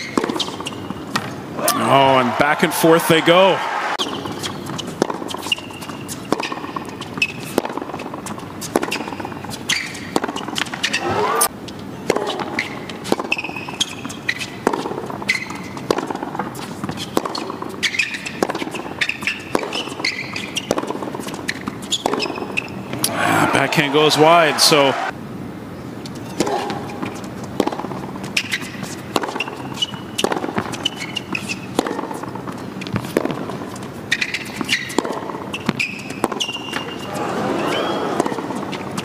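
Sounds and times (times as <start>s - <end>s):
sneakers squeaking on court: 0.0s - 1.8s, 4.0s - 24.5s, 26.0s - 39.0s
rackets striking tennis ball: 4.0s - 11.2s, 26.4s - 37.2s.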